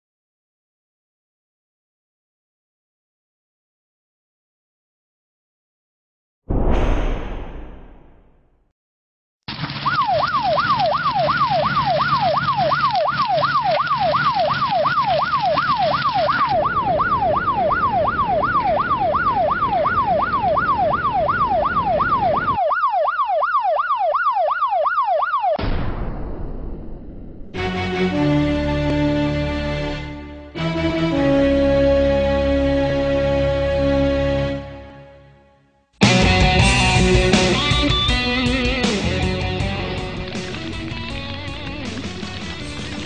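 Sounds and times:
emergency siren yelping: 9.6 - 25.6.

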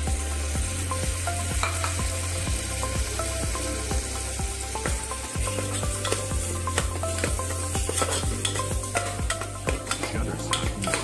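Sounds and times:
paste sizzling in hot oil: 0.0 - 11.0
spoon scraping against pot: 7.2 - 11.0.

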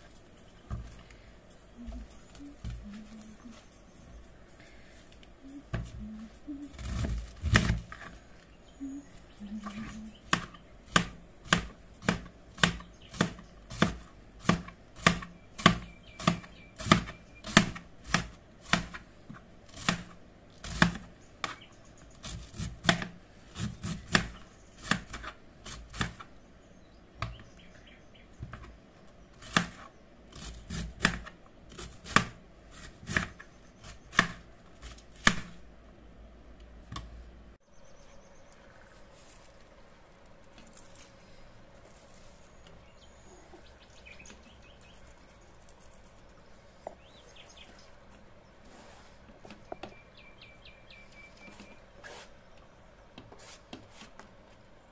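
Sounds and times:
knife chopping cabbage on board: 10.2 - 19.0, 19.7 - 21.6, 22.2 - 26.3, 29.4 - 35.6.

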